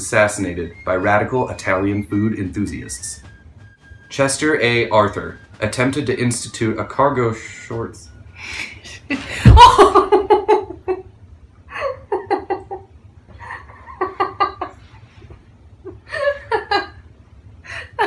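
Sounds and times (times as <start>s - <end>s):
person laughing: 8.9s - 11.0s, 11.7s - 14.8s.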